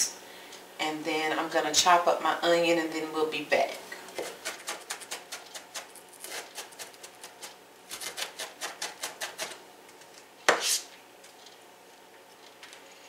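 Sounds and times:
knife chopping onion: 4.2 - 9.6.

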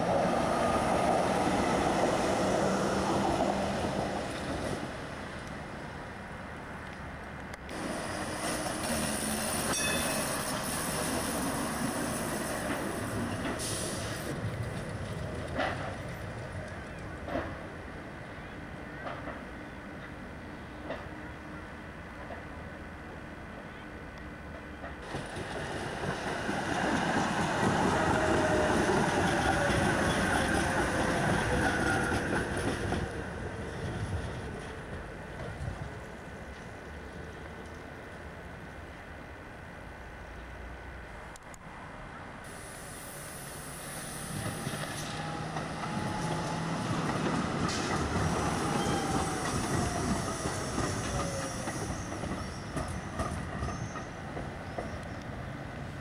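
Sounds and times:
tram wheels rumbling on rails: 0.0 - 39.6, 42.8 - 56.0
high wheel squeal: 8.9 - 11.4, 48.4 - 54.2.

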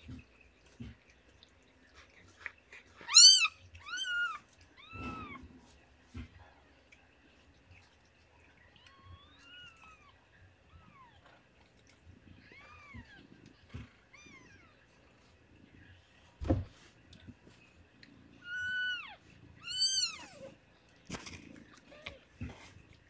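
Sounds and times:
newborn kittens crying: 3.0 - 5.4, 8.8 - 11.2, 12.4 - 13.2, 18.4 - 20.5
dull thump: 16.4 - 16.8.

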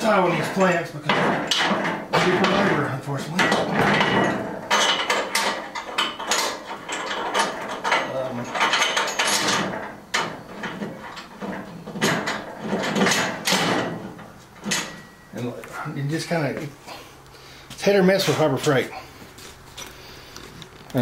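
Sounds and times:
metal hardware clattering: 0.0 - 16.6.

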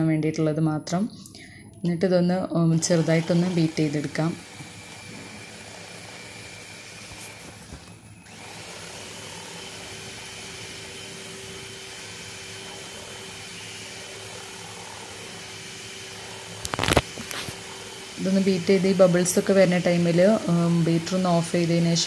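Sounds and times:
electric hand mixer running: 2.7 - 22.0.

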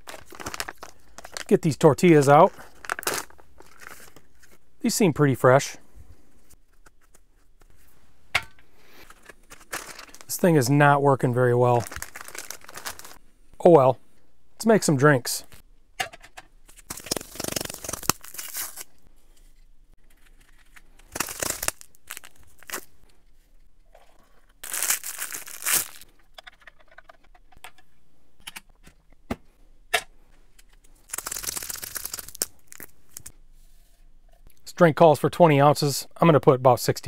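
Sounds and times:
plastic packaging tearing and crinkling: 0.0 - 1.5, 2.7 - 4.0, 9.4 - 10.3, 11.8 - 13.2, 16.8 - 19.0, 20.2 - 22.9, 24.6 - 26.0, 31.0 - 33.3.

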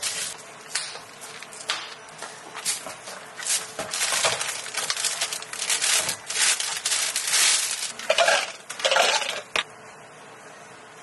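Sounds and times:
plastic film crinkling: 0.0 - 0.4, 3.4 - 9.4.

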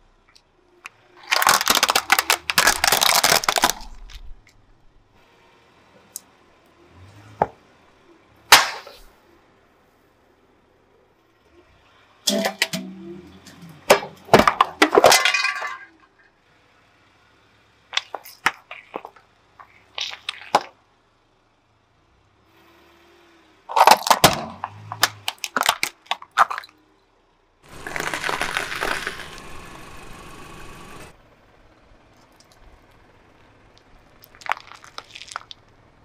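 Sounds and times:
brittle shells crunching: 1.2 - 4.3, 17.9 - 20.7, 23.7 - 26.8, 27.7 - 29.4, 33.8 - 35.6
metal can crumpling: 1.2 - 4.3, 23.7 - 26.7, 27.7 - 29.4, 34.2 - 35.6.

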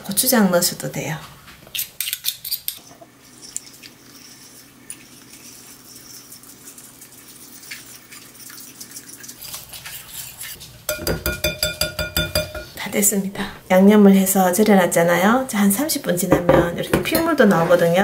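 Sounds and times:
whisk swishing batter: 3.2 - 12.6
spoon tapping glass bowl: 10.9 - 12.8.

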